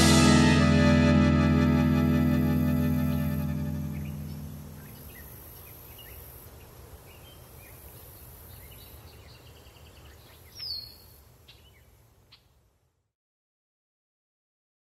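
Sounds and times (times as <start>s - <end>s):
music chord: 0.0s - 5.0s
faint high hiss: 0.0s - 13.1s
bird chirps: 2.7s - 6.2s, 8.6s - 12.5s.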